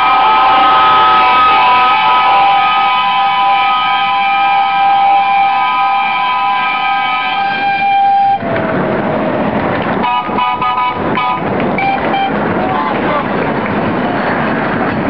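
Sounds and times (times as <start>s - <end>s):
steam locomotive whistle blast: 0.0s - 8.5s, 10.0s - 13.0s
train carriages clattering: 7.0s - 15.0s.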